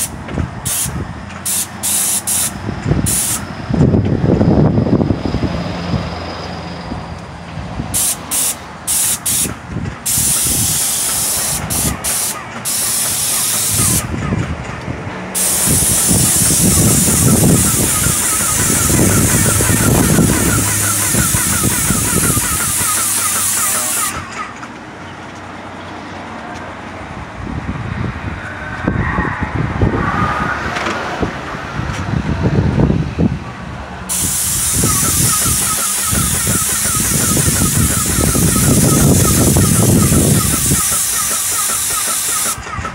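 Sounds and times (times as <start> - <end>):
paint sprayer hissing: 0.0 - 3.5, 8.0 - 14.1, 15.4 - 24.4, 34.1 - 42.8.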